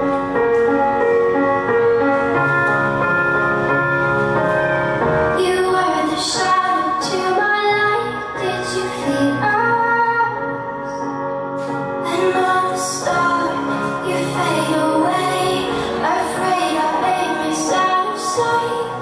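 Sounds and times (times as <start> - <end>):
sustained keyboard chords: 0.0 - 19.0
woman singing: 5.4 - 11.1, 12.0 - 19.0.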